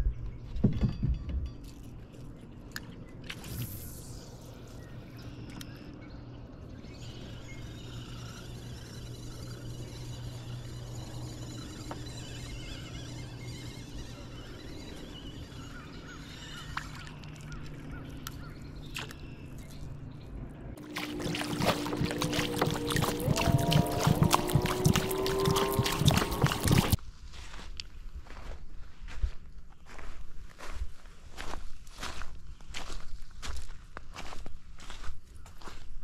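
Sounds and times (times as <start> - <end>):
steady low hum: 2.0 - 27.0
distant birdsong: 2.8 - 27.0.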